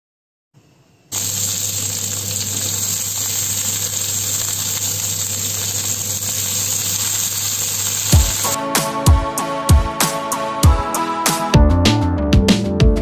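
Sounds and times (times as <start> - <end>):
food sizzling in oil: 1.1 - 8.6.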